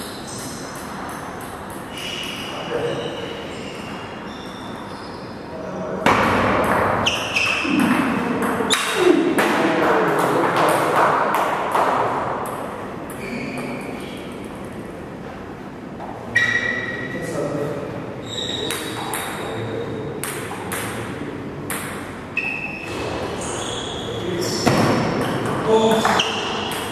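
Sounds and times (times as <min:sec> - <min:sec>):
ball bounces with ringing ping: 0:00.0 - 0:02.5, 0:06.1 - 0:09.6, 0:10.2 - 0:14.0, 0:18.4 - 0:21.1, 0:21.7 - 0:23.0, 0:24.5 - 0:26.9.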